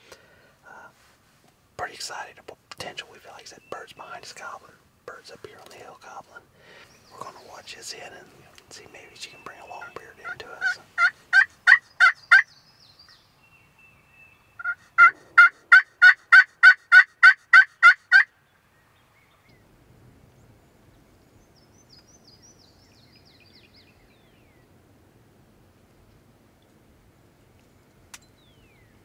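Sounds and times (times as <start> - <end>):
turkey yelping: 10.2 - 12.5, 14.6 - 18.3.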